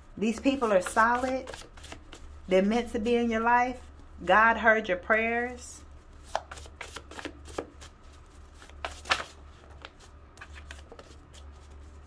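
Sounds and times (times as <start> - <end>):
cards being shuffled: 0.6 - 2.3, 6.1 - 12.0.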